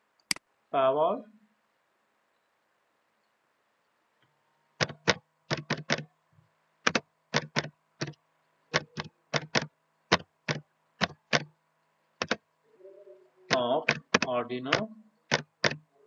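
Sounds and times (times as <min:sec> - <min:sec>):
keyboard key clicks: 0:04.8 - 0:06.1, 0:06.8 - 0:11.5, 0:12.2 - 0:12.4, 0:13.5 - 0:15.8.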